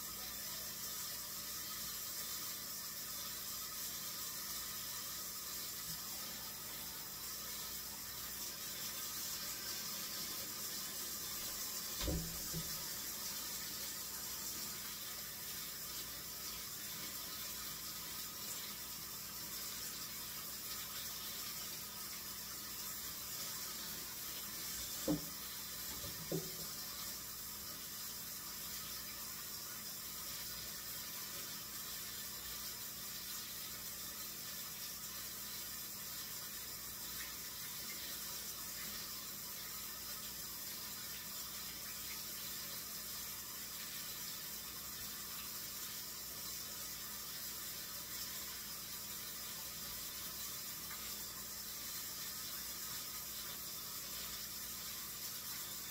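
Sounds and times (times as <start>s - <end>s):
tap running into sink: 11.2s - 13.1s, 24.8s - 26.8s.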